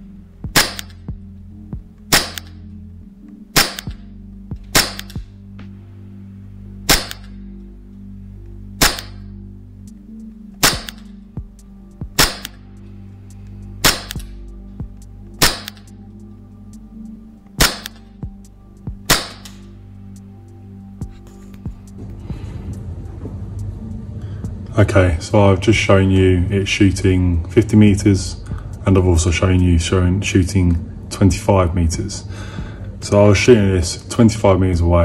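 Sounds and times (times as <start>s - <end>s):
airsoft pistol shots: 0.5s - 1.0s, 2.1s - 2.6s, 3.6s - 4.0s, 4.7s - 5.2s, 6.9s - 7.3s, 8.8s - 9.2s, 10.6s - 11.0s, 12.2s - 12.6s, 13.8s - 14.3s, 15.4s - 15.8s, 17.6s - 18.0s, 19.1s - 19.6s.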